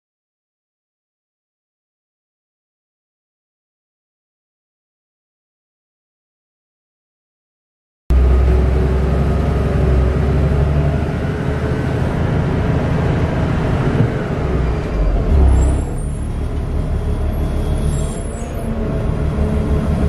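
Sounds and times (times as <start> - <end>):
bus engine rumble: 8.1 - 20.0
road noise: 8.1 - 20.0
faint high squeaking: 14.6 - 19.0.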